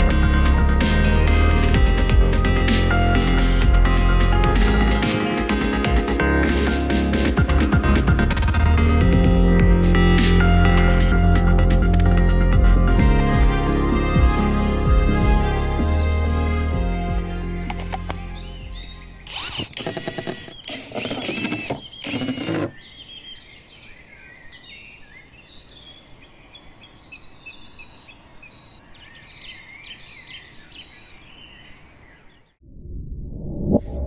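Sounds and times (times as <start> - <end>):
birds chirping and singing: 16.8 - 32.6
cordless drill driving screws: 19.2 - 22.8.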